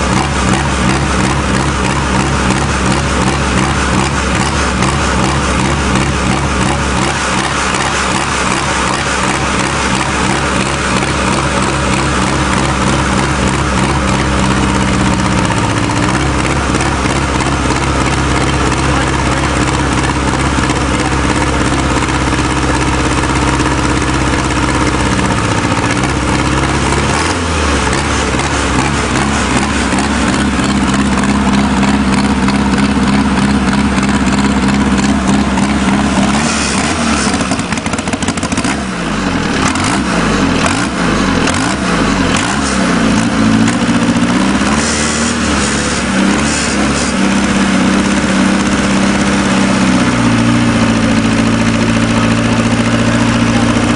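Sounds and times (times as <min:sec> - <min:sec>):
small diesel engine revving: 0:00.0 - 0:53.9.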